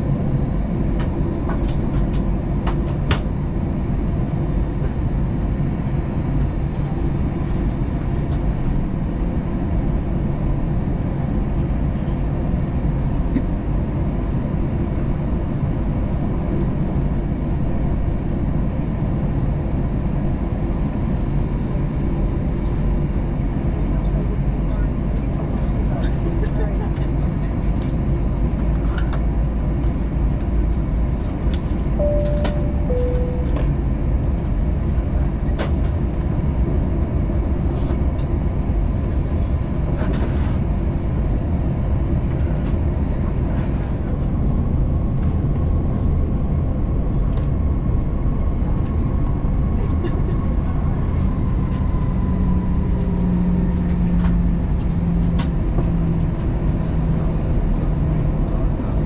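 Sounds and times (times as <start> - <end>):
aircraft cabin rumble: 0.0 - 59.0
low engine hum: 0.0 - 59.0
two-note falling cabin chime: 32.0 - 33.8.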